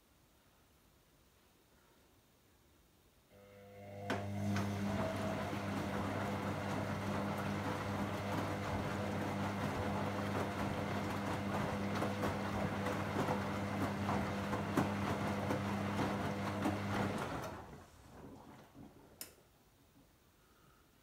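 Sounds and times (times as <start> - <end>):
washing machine motor hum: 3.3 - 19.2.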